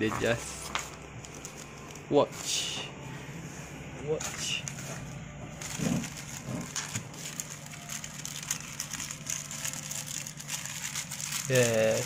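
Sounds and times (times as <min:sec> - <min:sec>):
bubble wrap crinkling: 0:00.6 - 0:02.1, 0:04.2 - 0:12.0.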